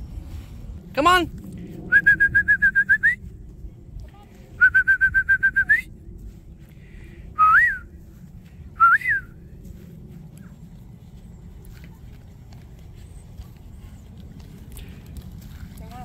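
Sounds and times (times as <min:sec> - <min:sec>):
person whistling: 0:01.9 - 0:03.2, 0:04.6 - 0:05.9, 0:07.4 - 0:07.9, 0:08.8 - 0:09.3.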